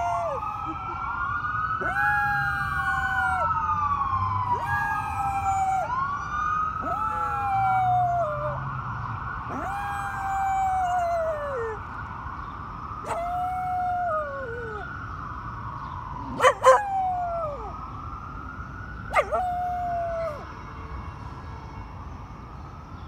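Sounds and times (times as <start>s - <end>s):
dog howling: 0.0s - 0.4s, 1.8s - 3.5s, 4.5s - 5.9s, 6.8s - 8.6s, 9.5s - 11.8s, 13.0s - 14.9s, 16.3s - 17.7s, 19.1s - 20.4s
wailing siren: 0.0s - 22.0s
dog yipping: 16.4s - 16.8s, 19.1s - 19.4s.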